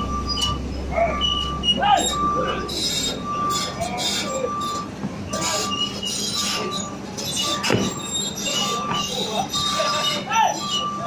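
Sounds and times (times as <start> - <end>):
high warning beeper: 0.0 - 6.0
backhoe engine running: 0.0 - 11.0
falling metallic squeal: 0.0 - 11.0
people shouting: 0.8 - 2.9, 9.8 - 10.6.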